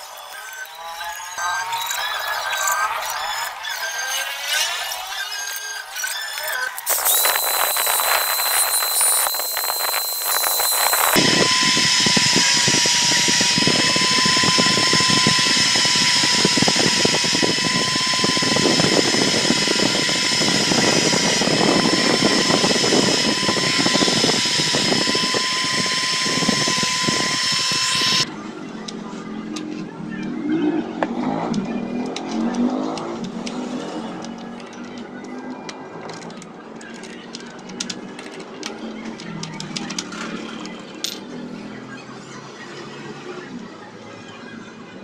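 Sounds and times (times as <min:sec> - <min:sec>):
electric motor whine: 0:06.7 - 0:28.4.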